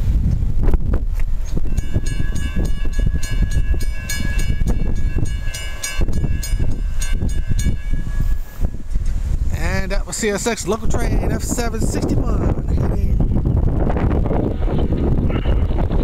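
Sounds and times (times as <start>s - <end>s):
wind rumble on microphone: 0.0s - 16.0s
crossing bell ringing: 1.7s - 9.2s.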